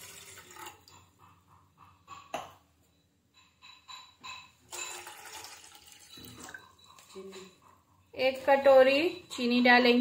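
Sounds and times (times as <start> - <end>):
water splashing into saucepan: 0.0 - 0.8.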